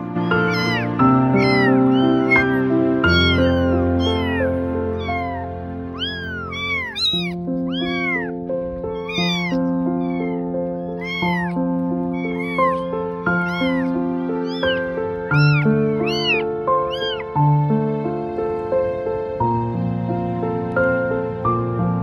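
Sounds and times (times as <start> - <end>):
kittens mewing: 0.0 - 17.4
background music of held notes: 0.0 - 22.0.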